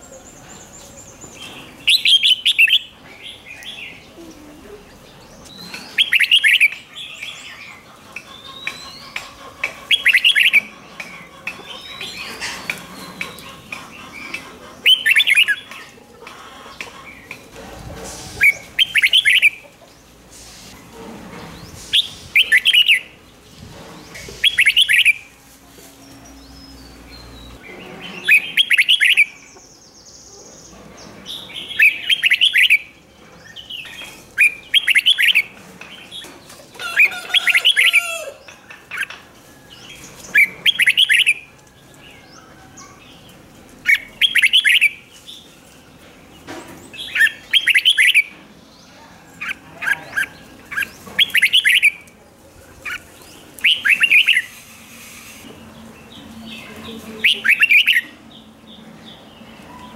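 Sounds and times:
bird singing warbled phrases: 0.0 - 17.4, 18.4 - 19.7, 26.1 - 30.8, 31.4 - 36.4, 40.2 - 41.5, 42.3 - 45.5, 46.4 - 52.1, 52.7 - 54.6, 55.6 - 59.9.

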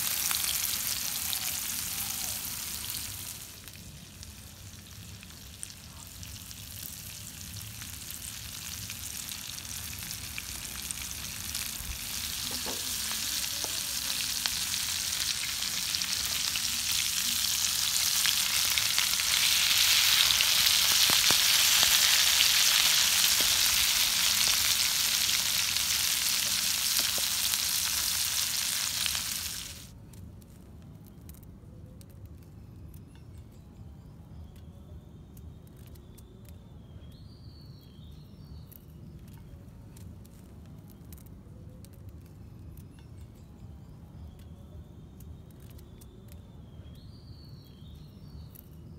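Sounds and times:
fish sizzling in hot oil: 0.0 - 29.9.

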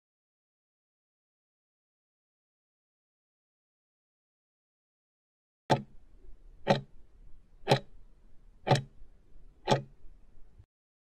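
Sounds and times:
clock ticking: 5.7 - 6.0, 6.6 - 7.0, 7.6 - 8.0, 8.6 - 9.0, 9.6 - 10.0.

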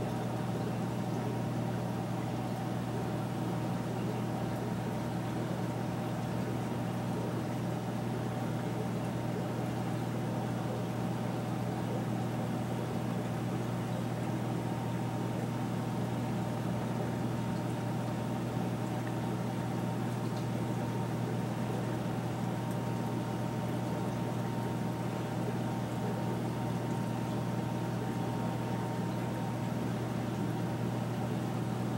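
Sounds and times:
aquarium pumps humming: 0.0 - 31.9.

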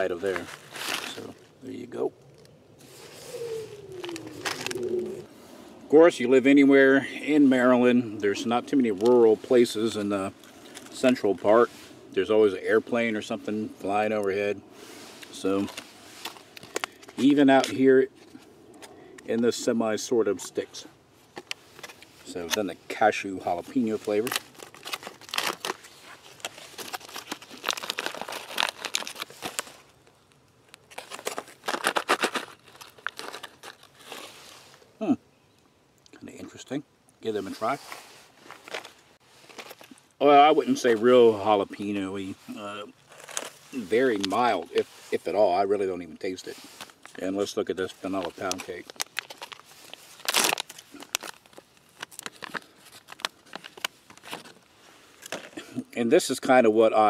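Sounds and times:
foil snack pouch crinkling: 0.0 - 5.2, 15.2 - 18.4, 21.4 - 34.8, 38.4 - 40.1, 41.8 - 55.8.

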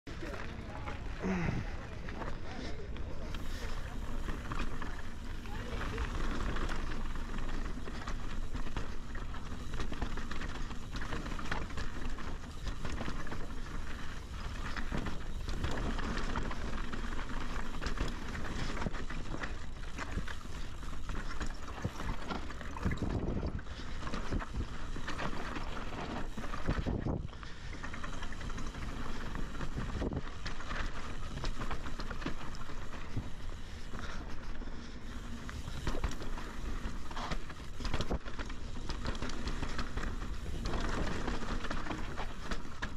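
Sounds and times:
bike rattling over bumps: 0.1 - 42.9
tyres crunching over gravel: 0.1 - 42.9.

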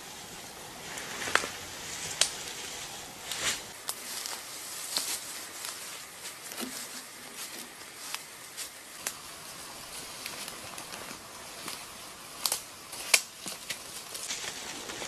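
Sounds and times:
dry leaves rustling and crunching: 0.0 - 15.0
sharp clicks and snaps: 12.4 - 13.8.

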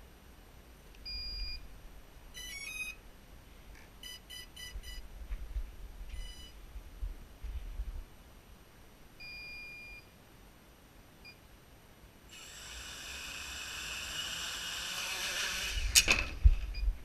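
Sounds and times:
electronic beeps: 2.4 - 3.0, 4.0 - 5.0, 6.2 - 6.6.

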